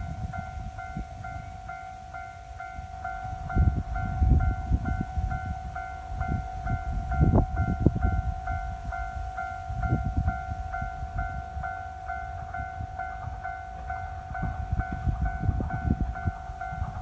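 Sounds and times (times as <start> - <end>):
level crossing warning bell: 0.0 - 17.0.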